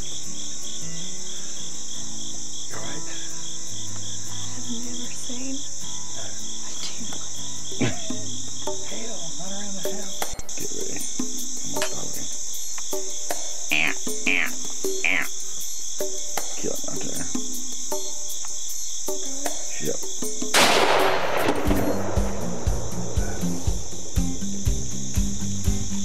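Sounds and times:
crickets and insects chirping: 0.0 - 26.0
loud gunshot: 20.5 - 23.9.

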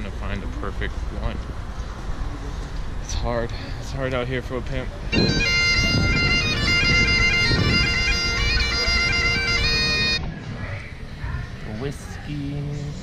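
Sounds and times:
bagpipes playing: 5.1 - 10.2.

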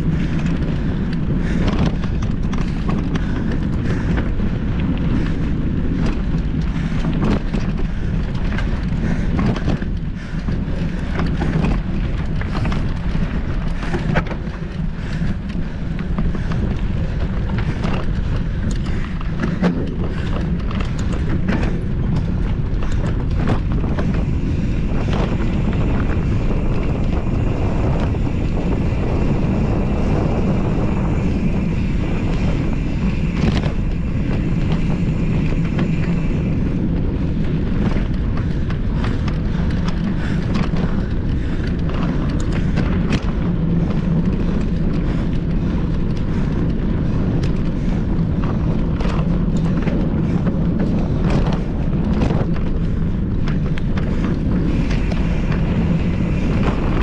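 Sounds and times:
bike knocks and rattles: 0.0 - 57.0
wind buffeting microphone: 0.0 - 57.0.

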